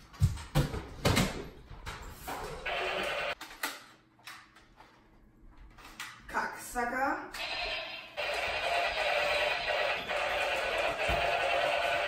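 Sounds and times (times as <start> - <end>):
heavy running thuds on tiles: 0.0 - 1.4.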